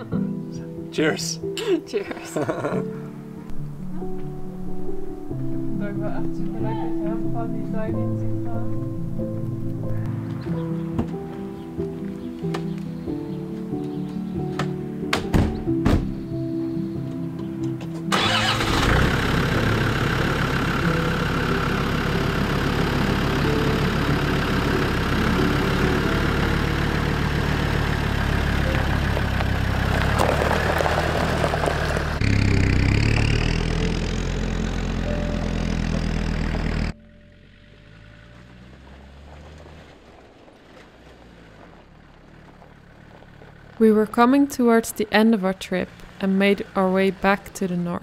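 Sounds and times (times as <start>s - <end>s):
tyres rolling on gravel: 17.9s - 48.0s
vehicle engine running: 18.0s - 48.0s.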